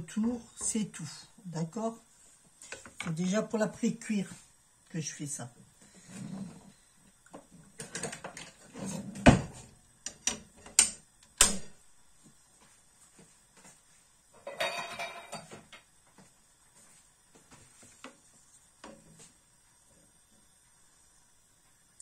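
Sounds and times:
kitchen utensils clattering: 0:14.4 - 0:15.6.

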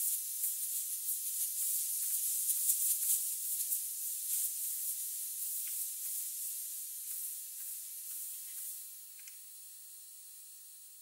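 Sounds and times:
compressed air hissing from hose: 0:00.0 - 0:10.6.

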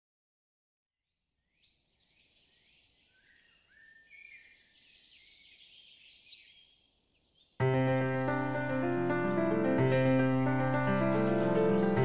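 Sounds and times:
birds chirping and whistling: 0:01.5 - 0:08.6, 0:09.8 - 0:12.0.

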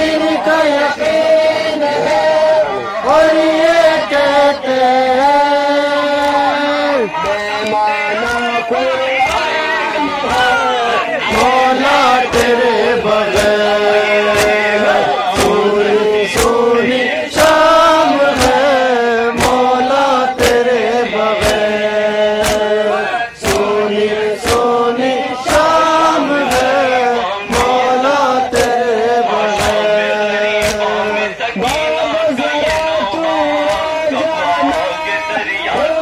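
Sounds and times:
men chanting in unison: 0:00.0 - 0:36.0
chest-beating slaps: 0:14.2 - 0:14.7, 0:15.3 - 0:15.7, 0:16.3 - 0:16.7, 0:18.3 - 0:18.6, 0:19.3 - 0:19.7, 0:20.4 - 0:20.6, 0:21.4 - 0:21.8, 0:22.4 - 0:22.8, 0:23.4 - 0:23.8, 0:24.4 - 0:24.8, 0:25.5 - 0:25.8, 0:26.4 - 0:26.8, 0:29.5 - 0:29.9, 0:30.5 - 0:31.0.

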